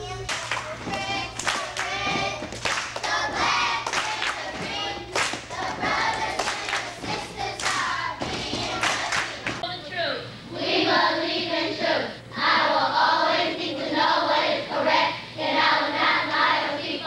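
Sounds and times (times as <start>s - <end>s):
children singing in chorus: 0.0s - 9.6s
rhythmic hand clapping: 0.0s - 9.6s.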